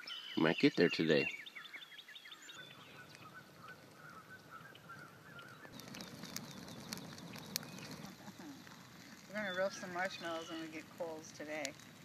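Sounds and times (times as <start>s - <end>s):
bonfire crackling and popping: 2.3s - 12.0s
faint animal calls: 2.4s - 8.7s.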